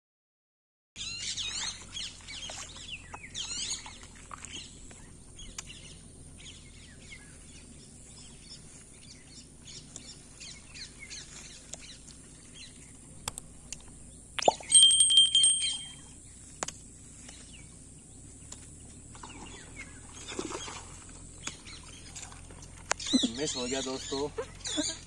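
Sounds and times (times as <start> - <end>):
small birds chirping: 1.0 - 25.0.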